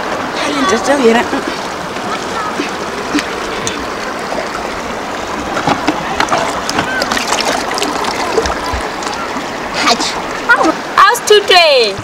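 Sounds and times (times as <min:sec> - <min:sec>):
river water running over rocks: 0:00.0 - 0:12.0
basin splashing in water: 0:05.4 - 0:09.5.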